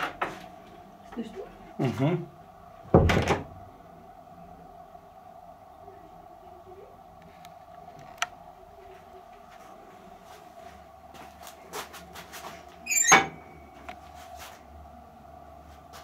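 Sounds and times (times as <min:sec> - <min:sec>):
steady hum: 0:00.0 - 0:16.0
scraping squeak: 0:12.8 - 0:13.4.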